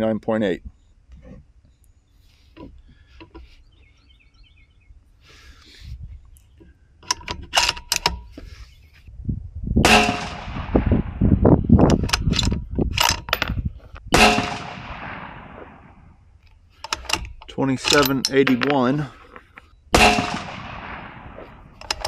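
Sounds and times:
rifle bolt clicks: 7.0 - 8.5, 11.8 - 13.5, 16.4 - 19.4, 20.0 - 22.0
rifle shots: 9.8 - 11.3, 14.1 - 16.2, 19.9 - 22.0.

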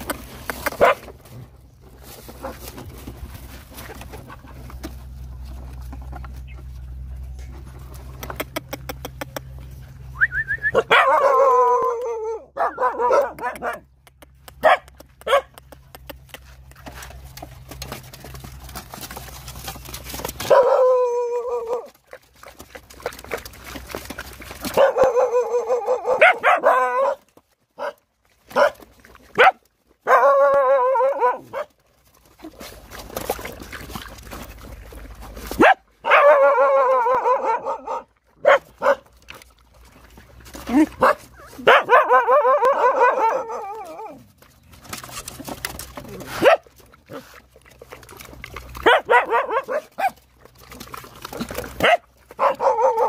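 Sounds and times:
puppies whining and yelping: 10.0 - 13.1, 40.3 - 46.4.

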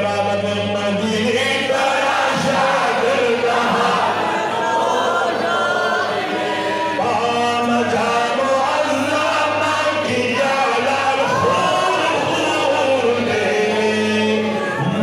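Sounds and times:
man singing a hymn unaccompanied: 0.0 - 4.2, 6.7 - 15.0.

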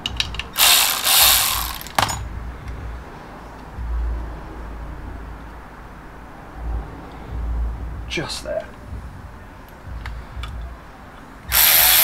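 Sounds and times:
ratchet ratcheting: 0.0 - 2.3, 11.5 - 12.0.

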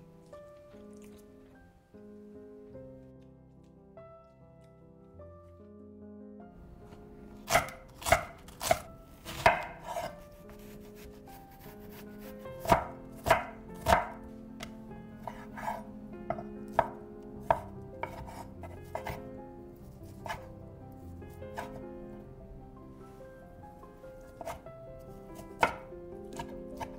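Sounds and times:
knife chopping on wooden board: 7.4 - 11.1, 12.3 - 19.3, 20.2 - 20.5, 21.5 - 21.8, 24.4 - 24.6, 25.4 - 26.9.

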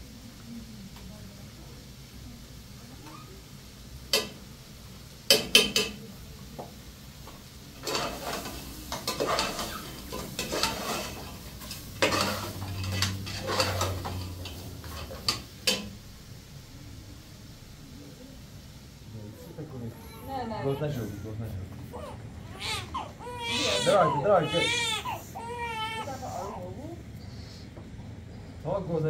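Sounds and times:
stirring and scraping in pot: 7.8 - 15.8.

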